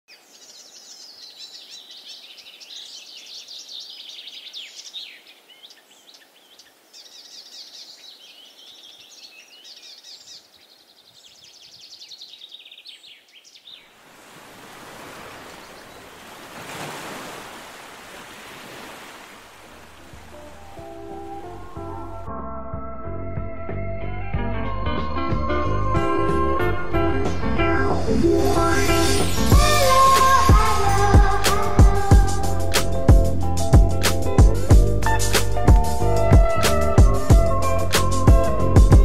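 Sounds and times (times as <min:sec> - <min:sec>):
songbirds chirping: 0:00.1 - 0:22.3
rushing surf-like noise: 0:14.0 - 0:20.9.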